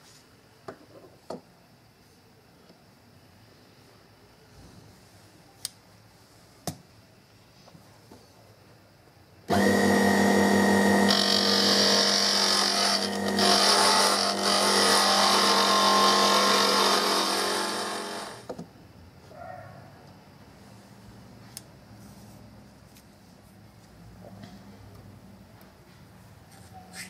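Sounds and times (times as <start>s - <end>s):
power tool humming: 9.5s - 18.5s
tool hissing on wood: 11.3s - 18.5s.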